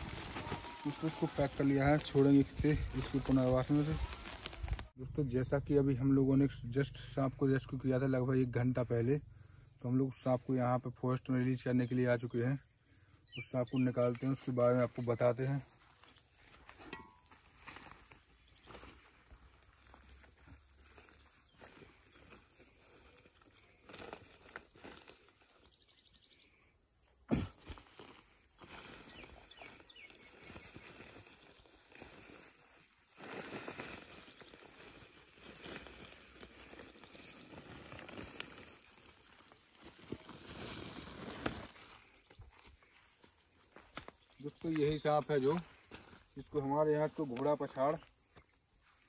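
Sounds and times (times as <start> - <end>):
plastic bag rustling: 0.0 - 4.9
crickets chirring: 0.0 - 49.0.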